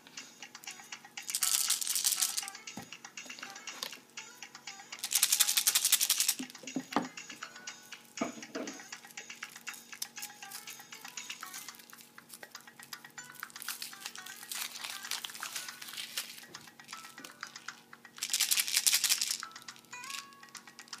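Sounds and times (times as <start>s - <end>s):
background music: 0.0s - 21.0s
foil wrapper crinkling: 13.6s - 16.6s.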